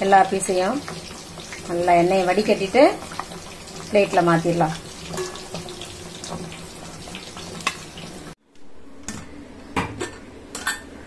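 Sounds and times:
hot oil sizzling: 0.0s - 8.4s.

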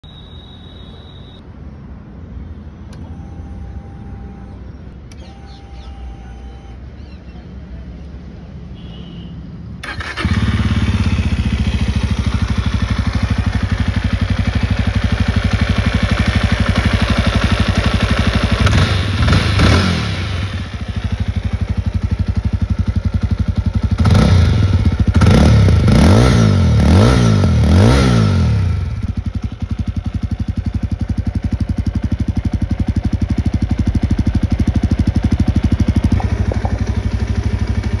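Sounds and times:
motorcycle engine idling and revving: 9.8s - 38.0s.

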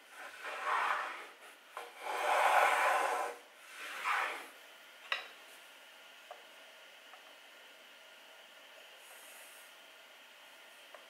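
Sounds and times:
hand plane cutting wood: 0.2s - 1.3s, 1.9s - 4.4s.

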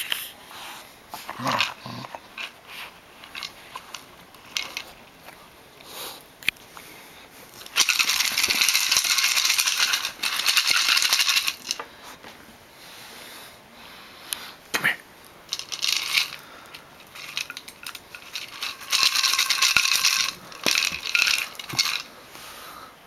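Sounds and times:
treats rattling in plastic jug: 1.4s - 5.0s, 7.6s - 11.8s, 15.5s - 22.1s.

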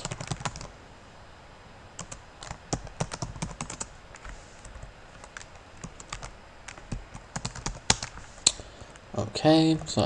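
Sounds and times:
keyboard typing clicks: 0.0s - 0.7s.

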